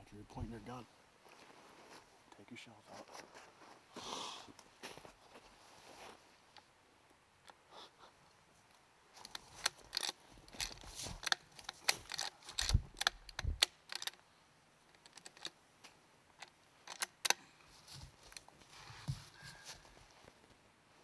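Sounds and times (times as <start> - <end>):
rifle action clicking: 9.3 - 14.2, 16.4 - 17.4.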